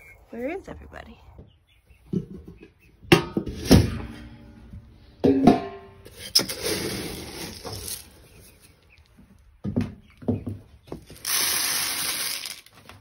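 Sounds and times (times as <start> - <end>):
metal lid clanging: 5.2 - 6.7
scoop rattling feed pellets: 6.3 - 8.2, 11.2 - 12.8.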